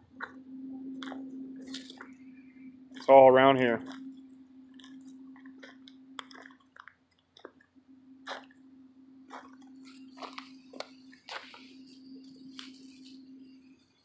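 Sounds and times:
steady low hum: 0.0s - 14.0s
footsteps on icy snow: 9.2s - 13.2s.

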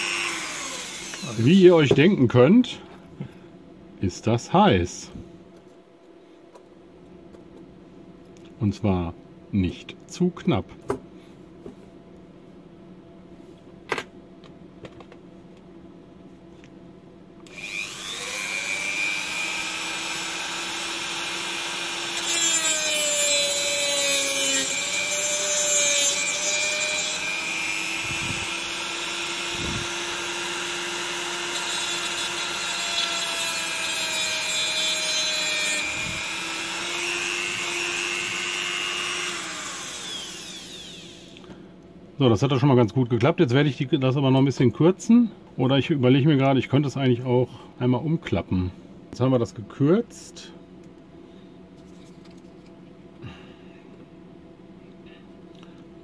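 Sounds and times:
rotary multitool whine: 0.0s - 1.6s, 35.5s - 41.4s
cutting disc grinding metal: 0.0s - 1.8s, 17.5s - 41.4s.

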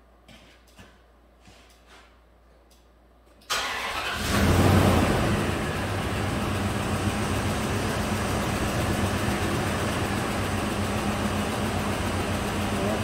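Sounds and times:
car engine idling rough: 4.2s - 13.0s.

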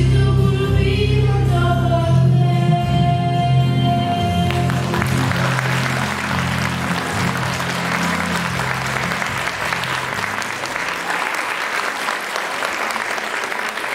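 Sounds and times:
low musical accompaniment: 0.0s - 11.1s
audience applauding: 4.5s - 13.9s.

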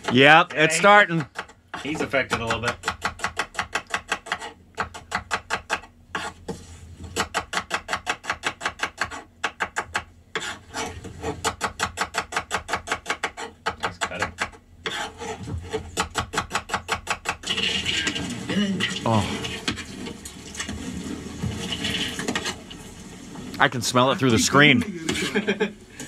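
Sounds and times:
knife slicing onions on a board: 1.2s - 17.5s.

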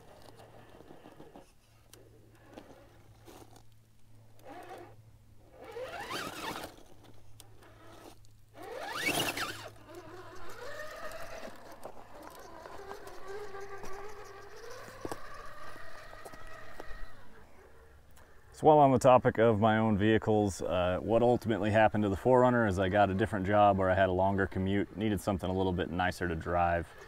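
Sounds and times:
tyres scrabbling on rock: 0.0s - 1.6s, 5.6s - 17.4s
electric motor whining: 0.0s - 3.7s, 4.3s - 18.1s.

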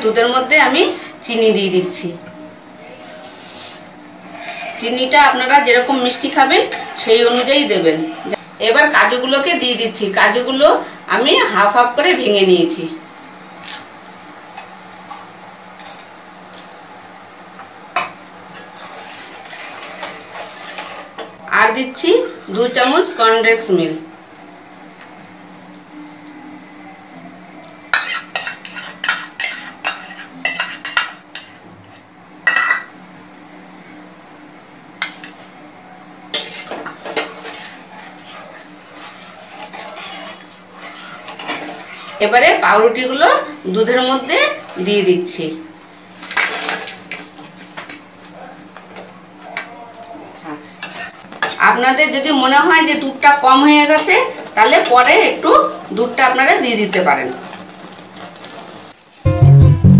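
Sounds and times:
spatula scraping metal pan: 3.4s - 5.4s, 18.6s - 21.2s, 28.0s - 31.4s, 36.3s - 42.4s.

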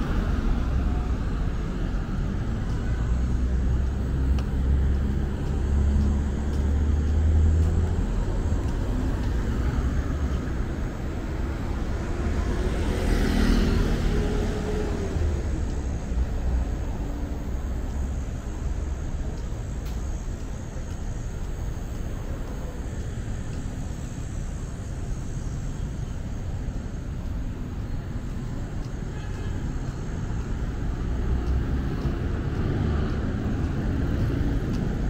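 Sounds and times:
passing cars and motorcycles: 0.0s - 35.0s
vehicle passing close: 4.0s - 16.2s.

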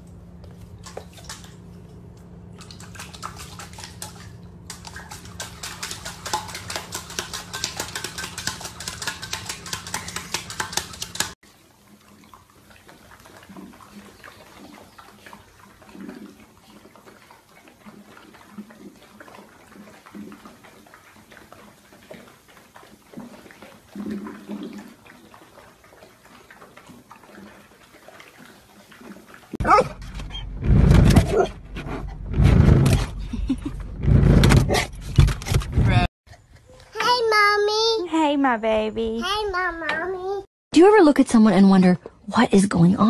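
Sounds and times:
dogs lapping water from bowl: 0.4s - 29.6s.

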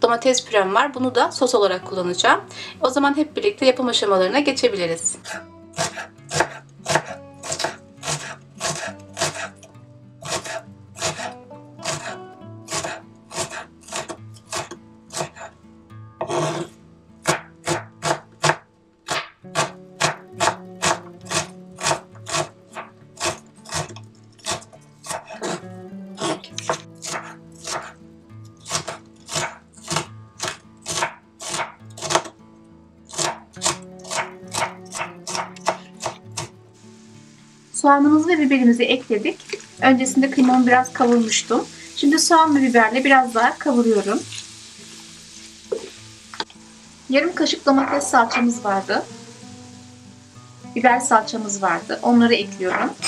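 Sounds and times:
soft background music: 0.0s - 53.0s
knife chopping on wooden board: 5.2s - 9.5s, 10.2s - 12.1s, 12.7s - 15.5s, 16.2s - 25.6s, 26.2s - 28.0s, 28.6s - 32.4s, 33.1s - 36.5s.

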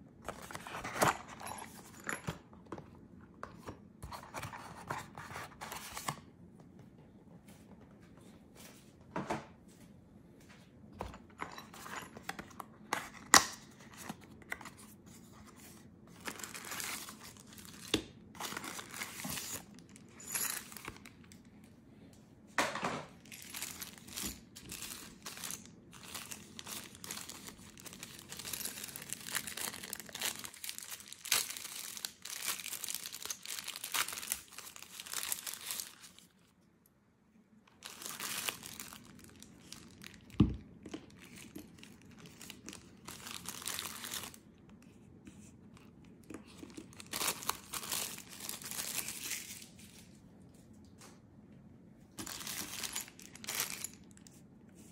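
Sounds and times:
plastic bag crinkling: 23.2s - 36.3s, 37.8s - 44.4s, 46.4s - 50.1s, 52.2s - 54.3s.

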